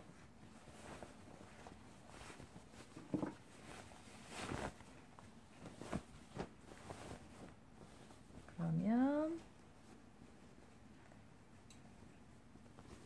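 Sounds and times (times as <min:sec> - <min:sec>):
fabric rustling and brushing: 0:00.0 - 0:13.0.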